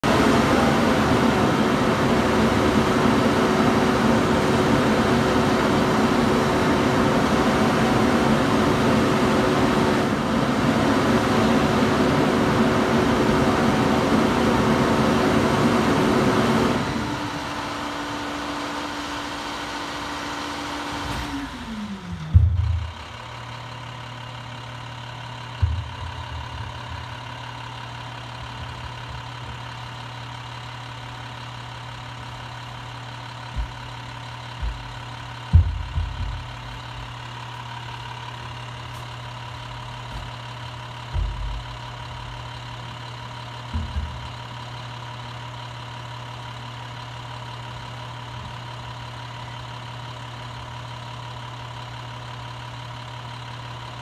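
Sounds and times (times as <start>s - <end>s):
diesel truck engine running: 0.0s - 54.0s
loud thump: 22.3s - 23.0s, 25.6s - 26.7s, 33.5s - 37.1s, 41.0s - 42.5s, 43.7s - 44.4s.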